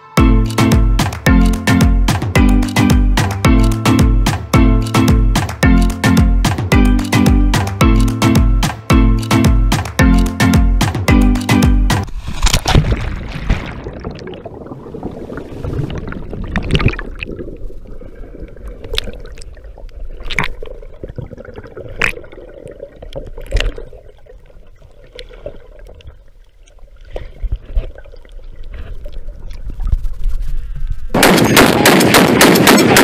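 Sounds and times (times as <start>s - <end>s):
sharp clicks: 4.8s - 8.2s
low rumble of moving water: 12.1s - 31.1s
bubbles gurgling underwater: 12.8s - 26.2s.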